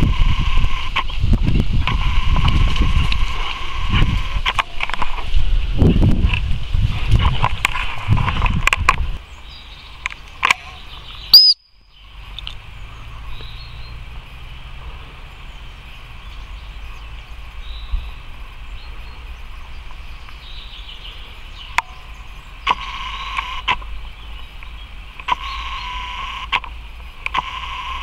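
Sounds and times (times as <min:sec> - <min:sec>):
wind rumble on microphone: 0:00.0 - 0:10.2
insects: 0:00.0 - 0:28.0
birdsong: 0:07.3 - 0:28.0
loud whistle blast: 0:11.3 - 0:11.7.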